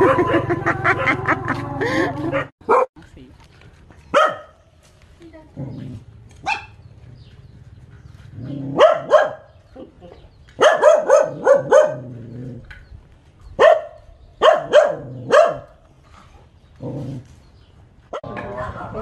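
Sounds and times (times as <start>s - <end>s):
dog barking: 2.4s - 2.9s, 4.1s - 4.6s, 6.4s - 6.8s, 8.6s - 9.6s, 10.6s - 12.1s, 13.6s - 15.8s.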